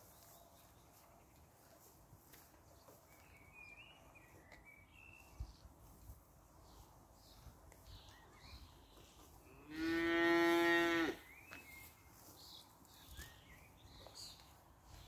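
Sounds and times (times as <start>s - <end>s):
cow mooing: 9.7s - 11.2s.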